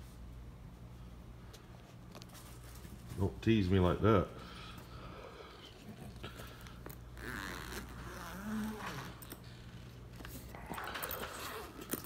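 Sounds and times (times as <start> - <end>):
low steady hum: 0.0 - 12.0
bags and small items handled: 5.8 - 12.0.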